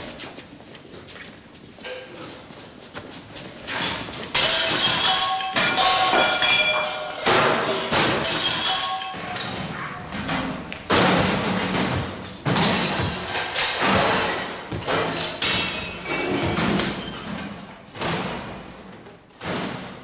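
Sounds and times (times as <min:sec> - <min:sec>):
debris ringing and clinking: 0:04.3 - 0:17.7
glass and metal smashing: 0:04.3 - 0:18.6.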